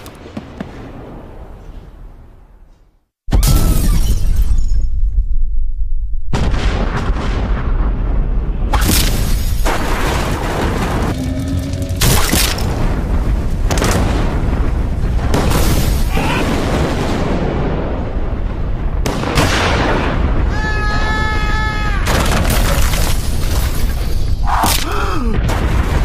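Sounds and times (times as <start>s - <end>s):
deep rumbling drone: 9.7s - 15.4s.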